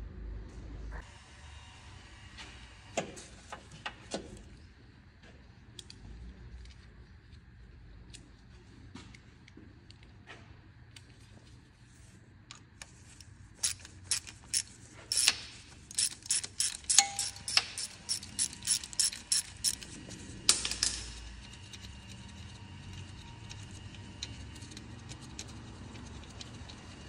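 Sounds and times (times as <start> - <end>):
socket ratchet clicking: 13.6 - 19.9.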